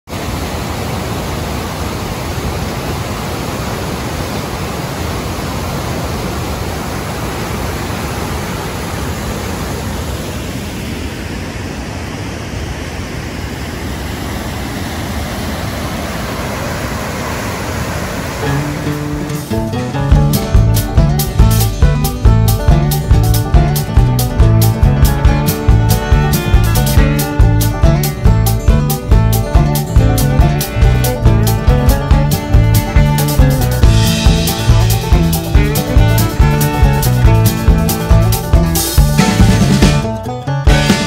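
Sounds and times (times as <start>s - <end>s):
waterfall rushing over rocks: 0.1s - 19.7s.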